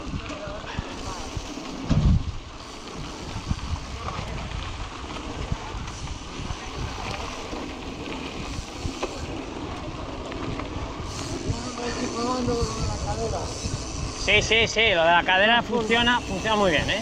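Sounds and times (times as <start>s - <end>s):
bike tyres on gravel: 0.0s - 17.0s
wind buffeting microphone: 0.0s - 17.0s
bike knocks and rattles: 1.5s - 2.2s.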